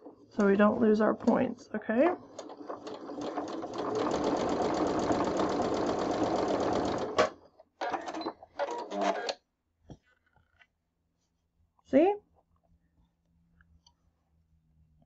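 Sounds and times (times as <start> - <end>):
electric sewing machine stitching: 2.0 - 9.3.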